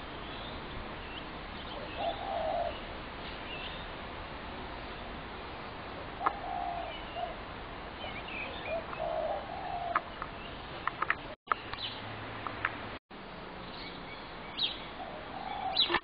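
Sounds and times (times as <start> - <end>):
small birds chirping: 0.0 - 4.0, 4.7 - 12.8, 13.5 - 16.0
doves cooing: 1.8 - 2.8, 5.9 - 7.4, 8.0 - 11.4, 15.0 - 16.0.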